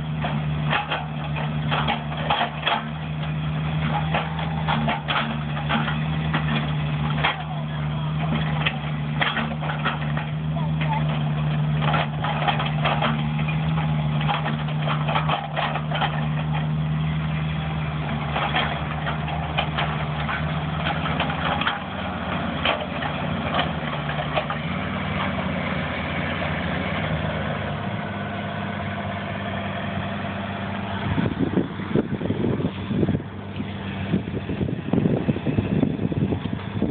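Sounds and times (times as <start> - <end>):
excavator diesel engine running: 0.0 - 36.9
sharp clicks and knocks: 0.1 - 16.8, 17.4 - 27.3.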